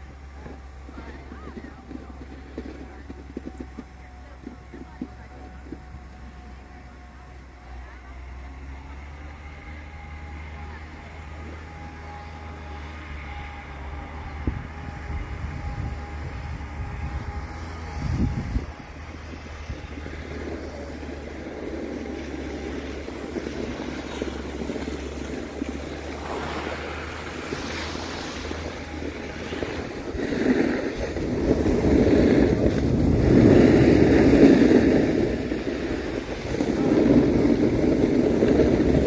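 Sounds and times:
skis scraping over snow: 0.0 - 39.0
wind on microphone: 14.0 - 39.0.

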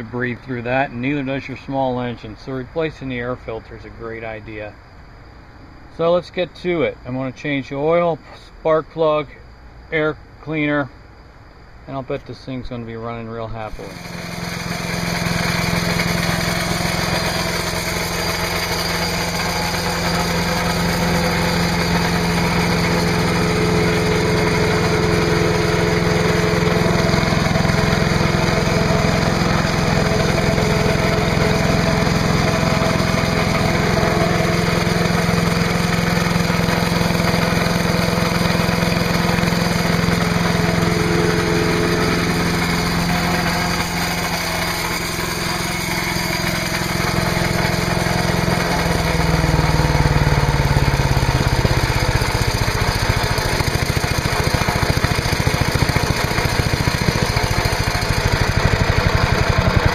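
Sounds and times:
chipper shredder engine running: 13.7 - 59.9.

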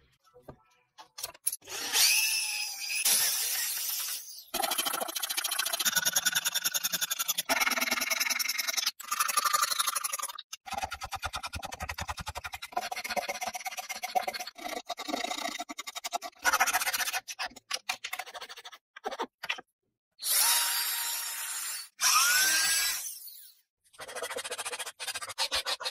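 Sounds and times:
drill on wood: 1.7 - 8.9, 20.2 - 23.5
scraping and rasping on wood: 24.0 - 25.9.

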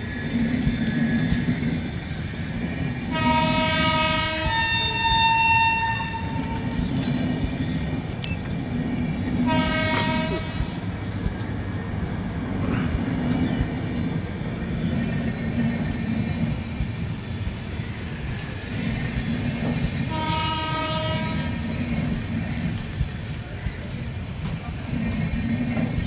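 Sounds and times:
train wheels rumbling on rails: 0.0 - 26.0
train horn: 3.0 - 6.9, 9.4 - 11.0, 20.0 - 21.8.

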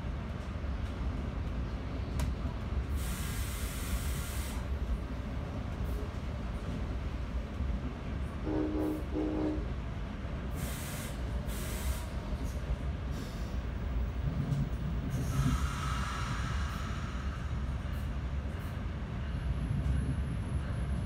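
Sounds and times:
train rumbling on rails: 0.0 - 21.0
muffled train horn blasts: 8.4 - 9.8.

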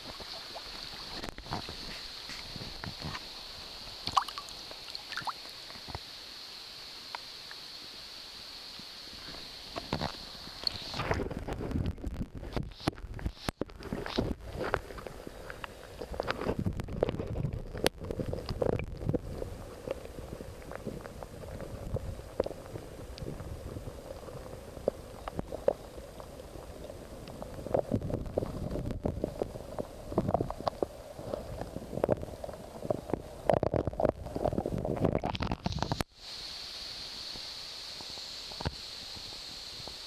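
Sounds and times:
steady hiss: 0.0 - 40.0
underwater river rumble: 0.0 - 40.0.

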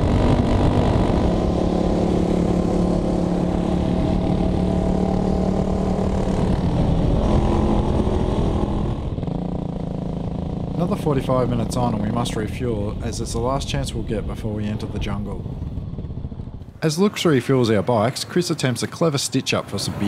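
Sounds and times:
wind rush on microphone: 0.0 - 10.5, 11.2 - 16.8
motorcycle engine cruising: 0.0 - 17.3.

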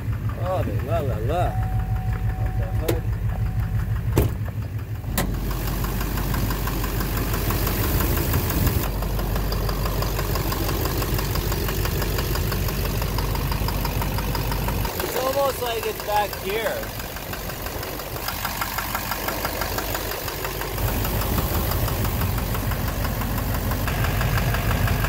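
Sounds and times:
diesel engine running with knock: 0.0 - 25.0.

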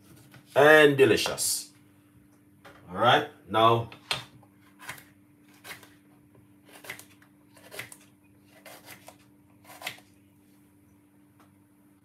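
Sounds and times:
faint steady hum: 0.0 - 12.0
knife cutting on wooden board: 6.7 - 10.1.

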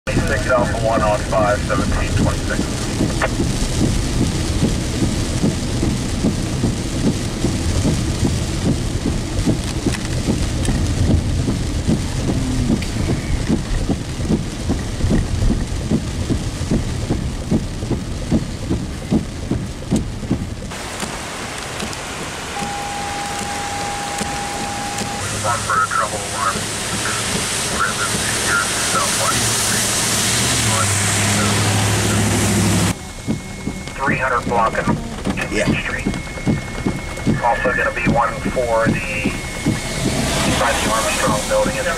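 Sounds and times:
heavy rain on car roof: 0.1 - 41.9.

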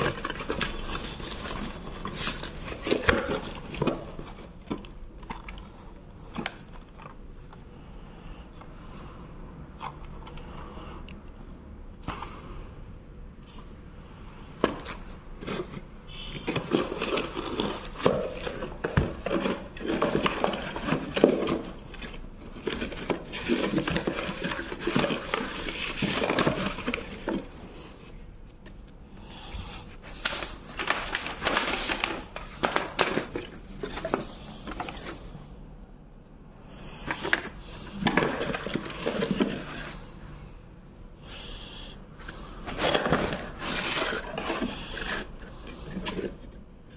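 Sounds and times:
plastic and cardboard packaging crumpling: 0.0 - 5.6, 14.7 - 28.6, 30.0 - 35.2, 37.0 - 40.1, 42.7 - 46.6.

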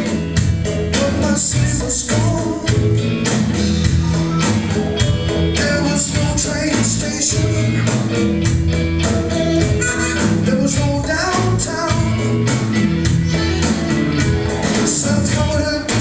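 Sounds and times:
live rock band playing: 0.0 - 16.0
man singing into a microphone: 0.9 - 3.1, 5.5 - 7.9, 9.8 - 12.5, 14.8 - 16.0.

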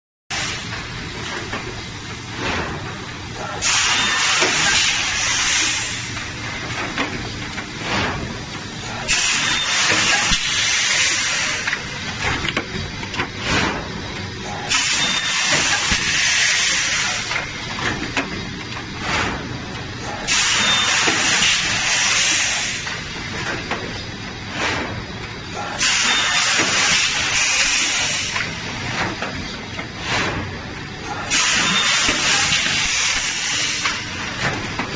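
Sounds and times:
loud air hiss: 3.4 - 6.2, 8.8 - 11.9, 14.4 - 17.4, 20.0 - 23.0, 25.6 - 28.6, 31.1 - 34.2.

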